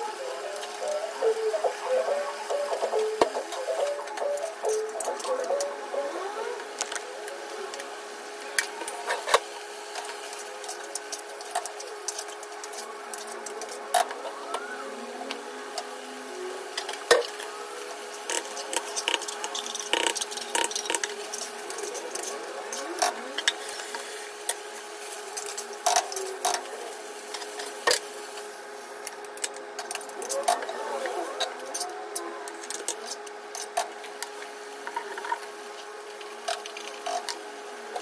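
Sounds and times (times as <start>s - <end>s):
steady hum: 0.0s - 38.0s
utensils and pans clicking: 18.2s - 24.0s.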